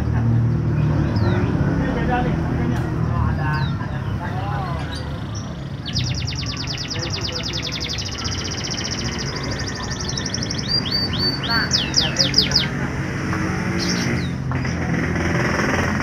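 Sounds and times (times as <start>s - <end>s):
canary singing: 3.0s - 15.7s.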